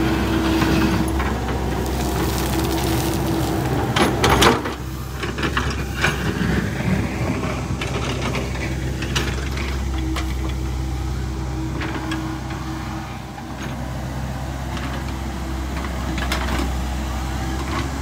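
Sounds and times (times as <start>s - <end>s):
excavator engine running: 0.0s - 18.0s
bucket scraping and clanking gravel: 0.1s - 10.5s.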